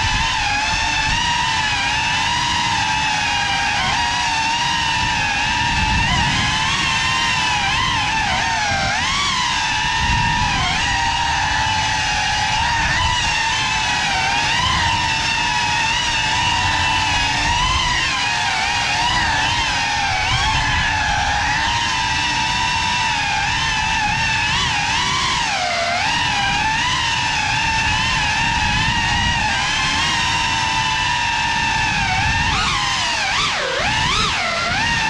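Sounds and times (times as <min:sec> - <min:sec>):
prop wash rumble: 0:00.0 - 0:35.0
quadcopter motors whining: 0:00.0 - 0:35.0.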